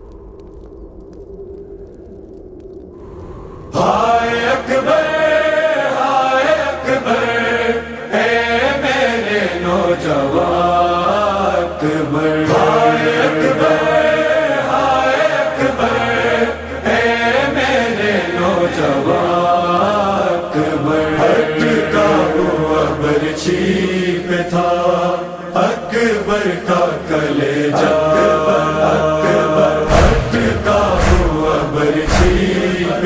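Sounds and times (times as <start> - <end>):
steady low hum: 0.0 - 5.6, 29.0 - 33.0
man chanting a mournful lament: 17.4 - 33.0.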